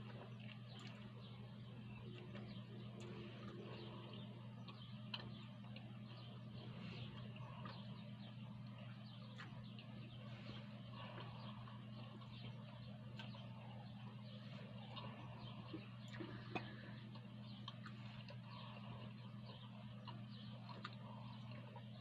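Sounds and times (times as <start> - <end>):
steady low hum: 0.0 - 22.0
person chewing with lip smacks: 14.8 - 21.9.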